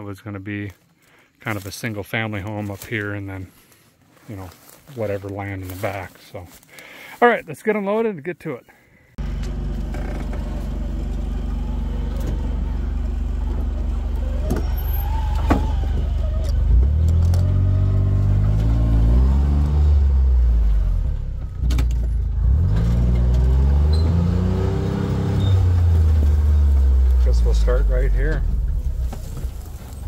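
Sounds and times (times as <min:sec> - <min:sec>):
utility vehicle engine revving: 0:09.2 - 0:30.0.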